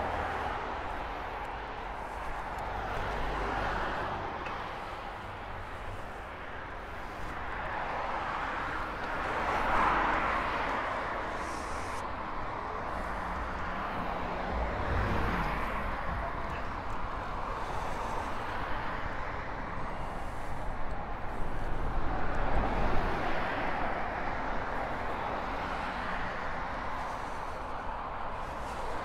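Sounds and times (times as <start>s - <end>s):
rushing road and traffic noise: 0.0s - 29.0s.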